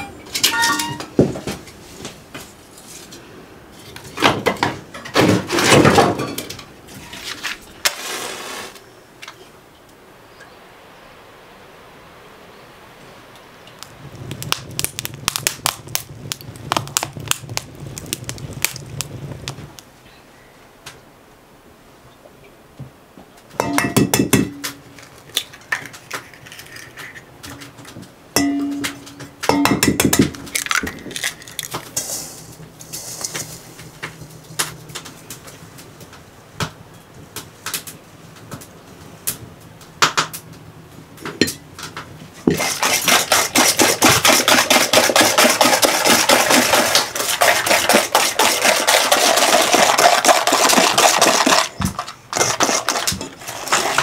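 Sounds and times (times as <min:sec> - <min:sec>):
dishes and utensils clinking: 0:00.0 - 0:01.2, 0:23.6 - 0:24.9, 0:28.4 - 0:33.7.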